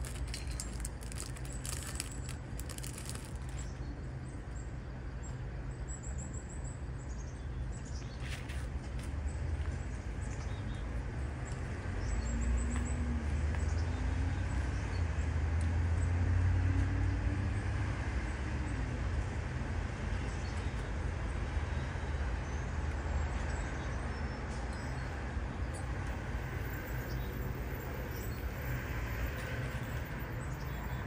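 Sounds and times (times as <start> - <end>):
vehicle engine rumble: 0.0 - 7.0.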